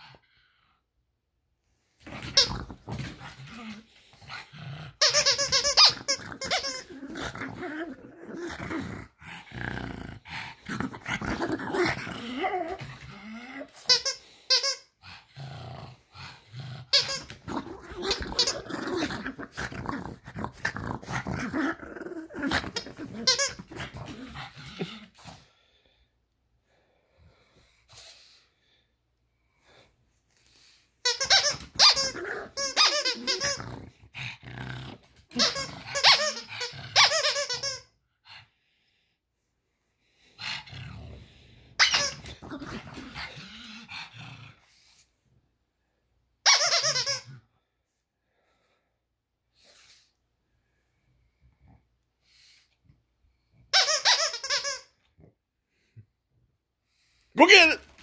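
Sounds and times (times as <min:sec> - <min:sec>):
dog growling and barking: 0:02.0 - 0:13.8, 0:15.0 - 0:25.5, 0:31.5 - 0:37.2, 0:40.2 - 0:44.9
squeaky toy squeaking: 0:05.0 - 0:07.0, 0:13.8 - 0:14.9, 0:16.9 - 0:17.4, 0:18.1 - 0:18.6, 0:23.2 - 0:23.6, 0:31.0 - 0:33.6, 0:35.3 - 0:37.9, 0:41.8 - 0:42.3, 0:46.4 - 0:47.3, 0:53.7 - 0:55.0.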